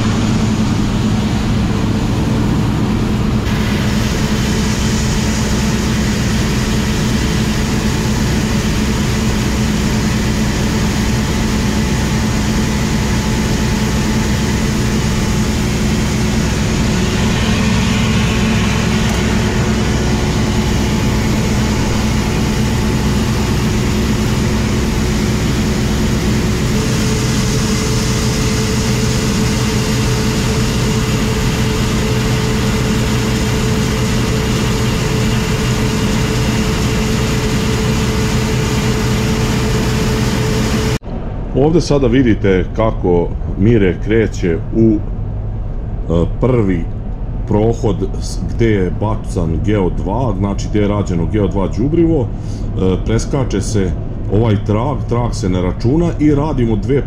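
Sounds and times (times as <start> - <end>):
combine harvester engine drone: 0.0 - 57.0
grain auger pouring: 3.5 - 41.0.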